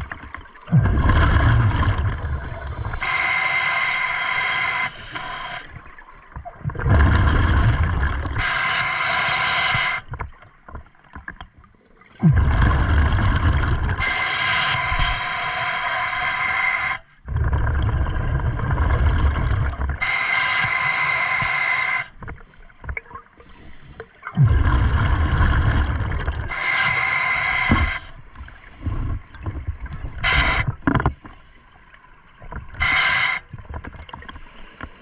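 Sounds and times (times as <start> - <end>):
bubbling exhale underwater: 0.0 - 3.3, 6.6 - 8.7, 12.2 - 15.3, 16.8 - 20.2, 24.3 - 28.2
hissing regulator inhale: 2.0 - 5.8, 8.2 - 10.1, 13.3 - 17.3, 19.8 - 22.2, 23.4 - 24.2, 25.6 - 29.2, 30.2 - 31.8, 32.8 - 33.5, 34.2 - 35.0.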